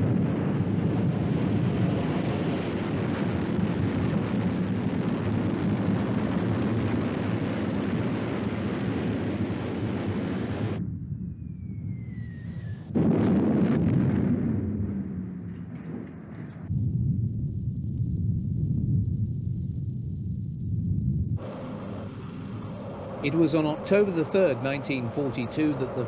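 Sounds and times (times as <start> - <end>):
rocket engine roar: 0.0 - 26.0
falling whistle: 11.4 - 12.9.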